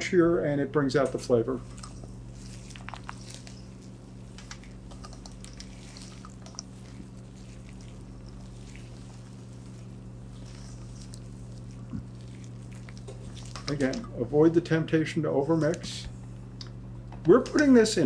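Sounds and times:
steady low hum: 0.0s - 18.0s
spatula scraping batter in bowl: 1.6s - 14.0s.

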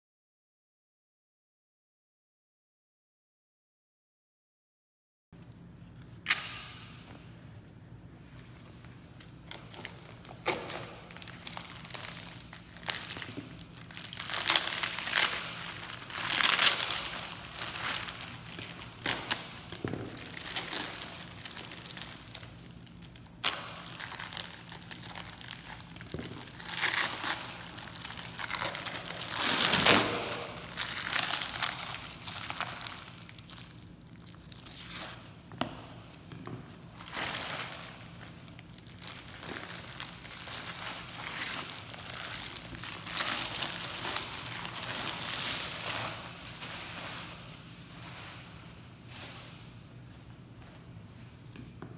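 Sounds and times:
plastic bag crinkling: 9.4s - 35.3s, 37.0s - 47.5s.

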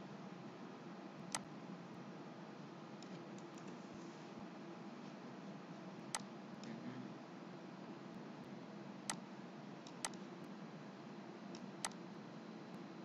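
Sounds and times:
mouse button clicks: 11.6s - 12.0s.

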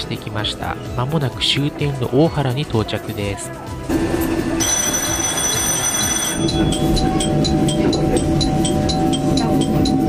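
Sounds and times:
steady tone: 3.9s - 10.0s
railcar rumble: 5.7s - 10.0s.

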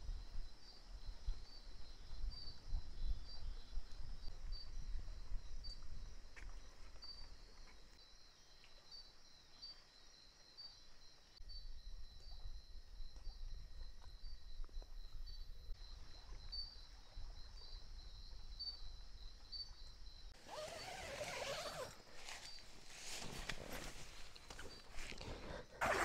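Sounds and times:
night insects droning: 0.0s - 25.9s
rustling and handling noise: 20.4s - 25.4s.

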